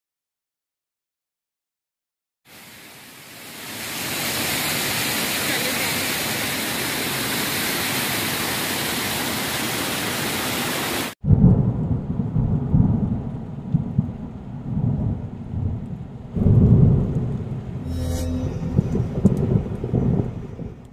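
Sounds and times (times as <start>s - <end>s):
flowing water rushing: 2.5s - 11.2s
rolling thunder rumbles: 11.2s - 17.8s, 18.6s - 20.9s.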